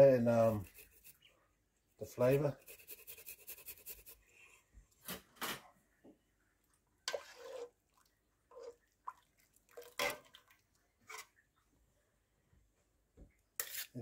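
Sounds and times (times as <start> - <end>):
spoon stirring and splashing broth: 6.6 - 11.7.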